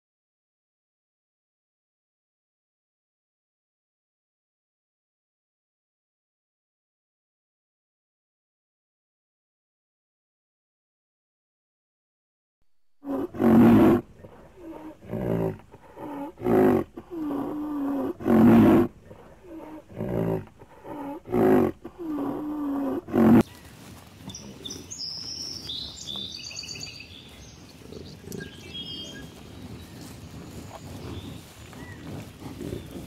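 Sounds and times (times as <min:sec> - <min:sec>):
rhinoceros grunting calls: 0:13.0 - 0:23.5, 0:25.9 - 0:33.0
birds chirping: 0:13.1 - 0:33.0.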